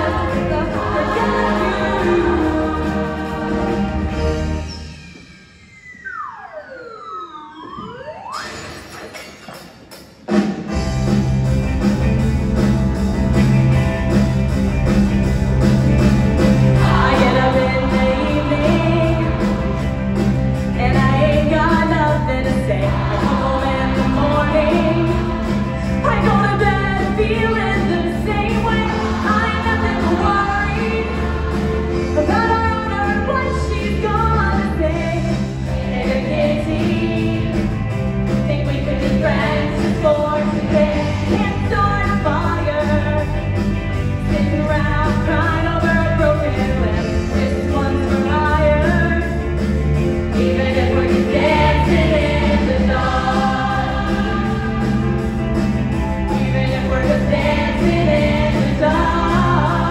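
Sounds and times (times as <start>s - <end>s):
women singing: 0.0s - 4.3s, 16.8s - 19.7s, 20.8s - 37.6s, 38.5s - 43.2s, 44.2s - 49.3s, 50.3s - 55.5s, 56.3s - 59.9s
music: 0.0s - 59.9s.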